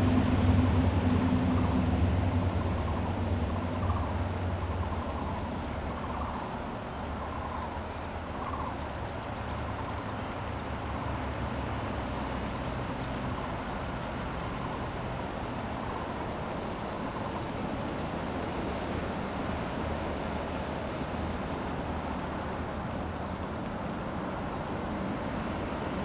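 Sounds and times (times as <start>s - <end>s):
faint high whine: 0.0s - 26.0s
faint animal calls: 1.5s - 8.9s, 15.6s - 17.6s.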